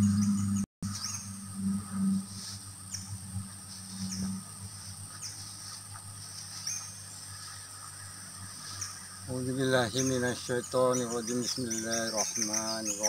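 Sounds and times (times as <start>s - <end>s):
high-pitched insect drone: 0.0s - 13.0s
falling bird chirp: 8.6s - 13.0s.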